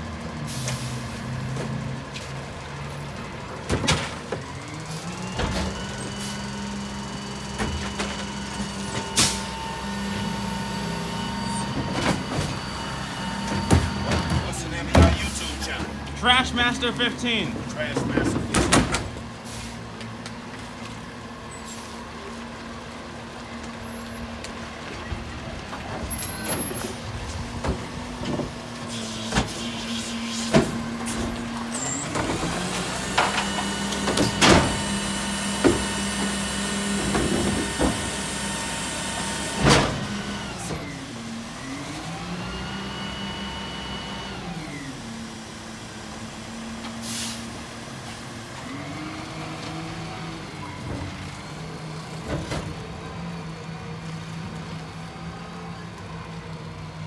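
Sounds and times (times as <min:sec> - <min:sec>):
hydraulic whine: 0:04.0 - 0:15.9, 0:27.7 - 0:47.4.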